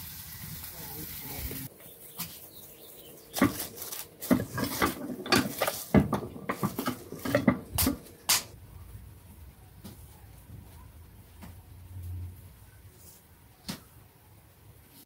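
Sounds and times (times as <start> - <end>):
metal tortilla press knocking: 3.4 - 3.7, 4.3 - 8.5.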